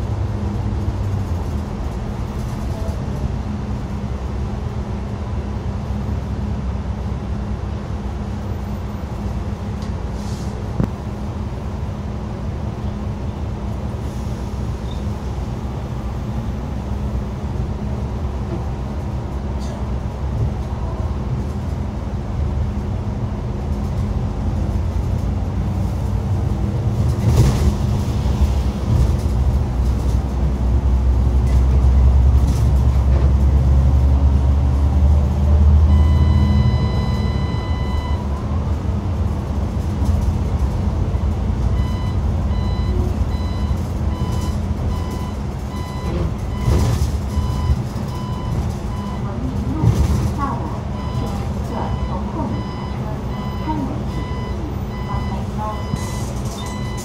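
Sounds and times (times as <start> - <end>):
bus drivetrain and road rumble: 0.0 - 57.0.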